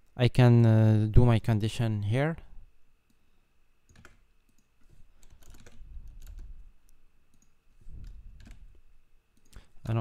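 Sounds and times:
typing on computer keyboard: 3.9 - 6.5, 7.3 - 8.6.

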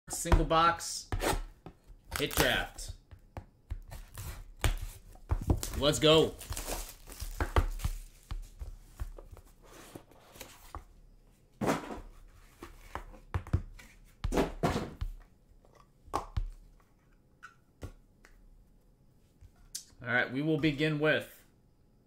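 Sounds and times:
hands rustling cardboard box: 4.0 - 10.8.

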